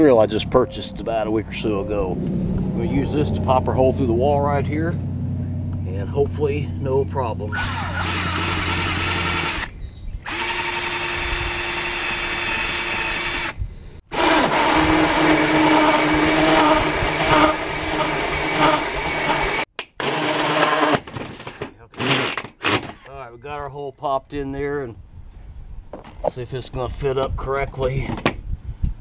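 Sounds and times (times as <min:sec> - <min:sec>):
drill cutting through metal: 0:07.5 - 0:09.7, 0:10.3 - 0:21.0, 0:22.0 - 0:22.4.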